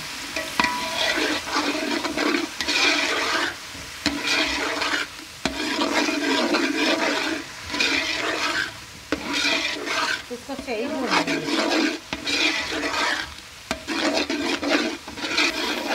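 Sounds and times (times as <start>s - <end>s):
ladle stirring and scraping pot: 0.0s - 15.9s
masala sizzling in oil: 0.0s - 15.9s
ladle clinking against pot: 0.4s - 1.1s.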